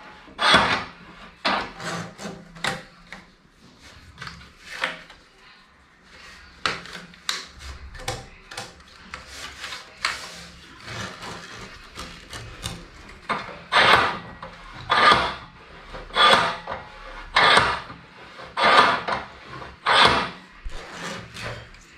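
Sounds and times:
loom rods and threads scraping: 0.0s - 3.0s, 6.5s - 21.9s
loud rasping strokes: 13.7s - 17.8s, 18.4s - 21.6s.

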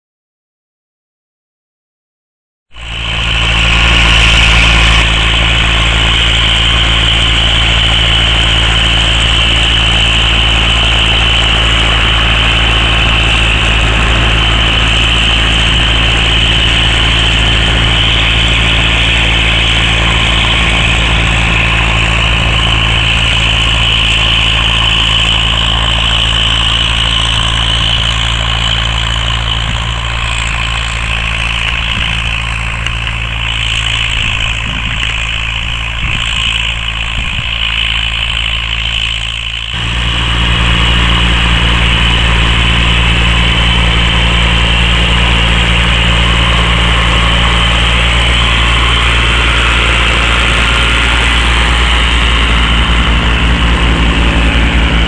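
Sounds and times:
tractor diesel engine under load: 2.7s - 55.0s.

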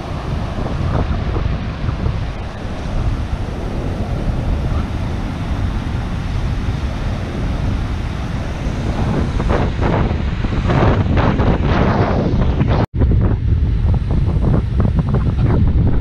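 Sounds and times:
surf washing on sand: 0.0s - 12.8s
wind buffeting microphone: 0.0s - 16.0s.

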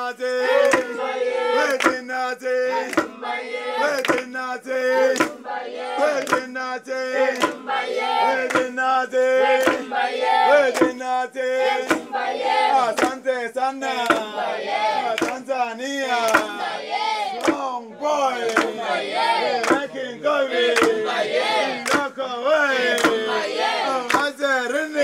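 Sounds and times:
group singing a rhythmic chant: 0.0s - 25.0s
hand clapping: 0.4s - 1.0s, 1.6s - 3.2s, 3.8s - 17.8s, 18.4s - 22.2s, 22.8s - 24.4s
wooden pestle pounding in mortar: 5.1s - 6.6s, 8.3s - 8.8s, 10.6s - 11.2s, 11.8s - 12.3s, 12.9s - 13.2s, 14.0s - 14.3s, 16.3s - 16.6s, 23.0s - 23.3s.

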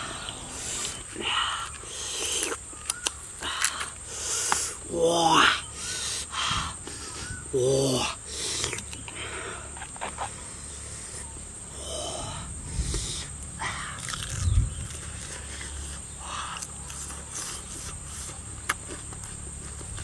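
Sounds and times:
man chewing: 0.0s - 4.8s, 6.8s - 9.2s, 12.7s - 20.0s
hissing breaths: 0.0s - 18.5s.

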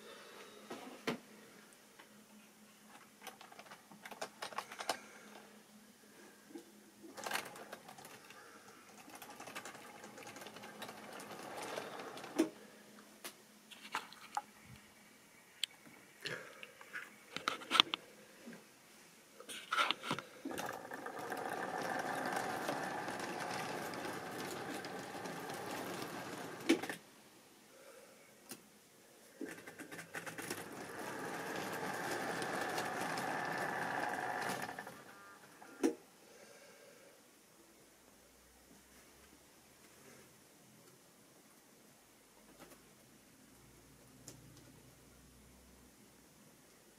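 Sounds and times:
wheels clicking over rail joints: 7.2s - 12.5s, 20.5s - 27.0s, 29.5s - 35.1s
model train motor whirring: 9.0s - 12.5s, 20.5s - 27.0s, 29.8s - 35.4s.

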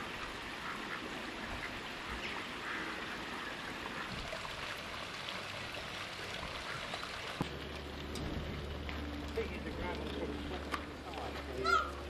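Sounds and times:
flowing water: 0.0s - 12.0s
ducks calling: 0.5s - 4.2s, 11.5s - 12.0s.

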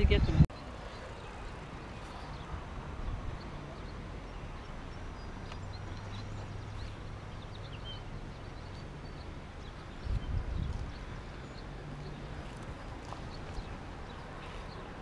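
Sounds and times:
wind rumble on microphone: 0.0s - 0.5s, 5.2s - 15.0s.

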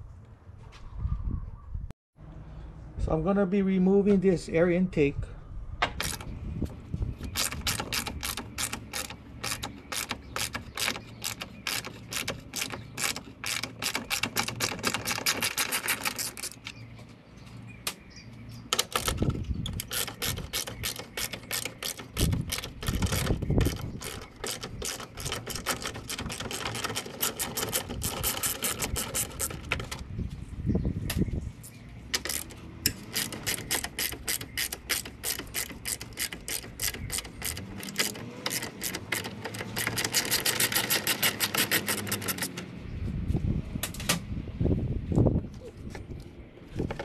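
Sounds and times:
hand ratchet clicking: 6.0s - 6.3s, 7.4s - 16.7s, 18.8s - 30.0s, 32.2s - 42.6s.

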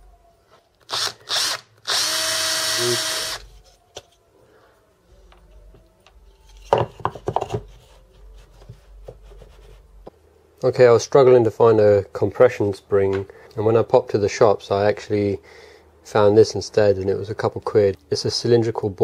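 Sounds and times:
electric drill drilling wood: 0.9s - 3.4s
plywood pieces knocking: 6.6s - 7.7s.

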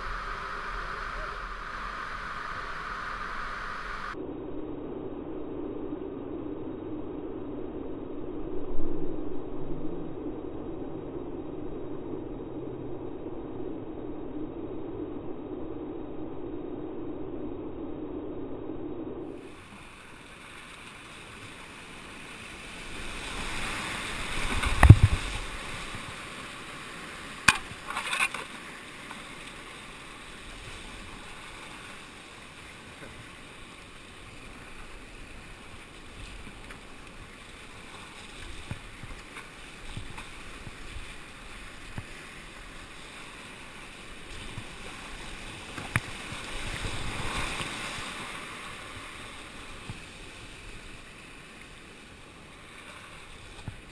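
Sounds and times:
whitewater rushing around canoe: 19.4s - 53.9s.

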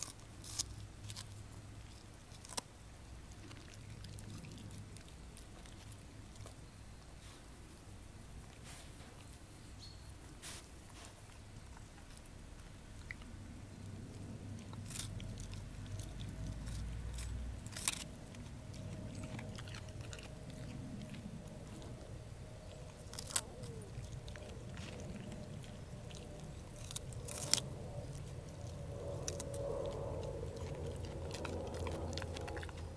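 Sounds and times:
dog chewing radish: 0.0s - 9.4s, 10.2s - 32.9s
sharp crunches: 14.6s - 22.0s, 22.9s - 32.9s.

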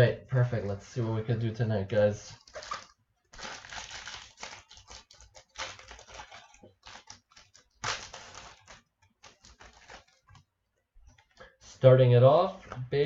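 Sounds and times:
foil wrapper tearing and crinkling: 2.4s - 10.2s.

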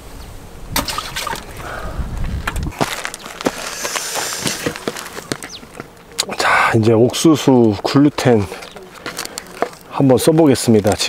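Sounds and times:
water sloshing: 0.8s - 1.7s.

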